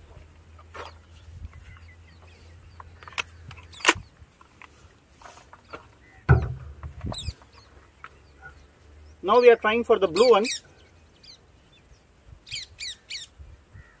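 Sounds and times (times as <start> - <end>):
air rifle clicks: 2.8 - 4.8
air rifle knock: 6.3 - 7.1.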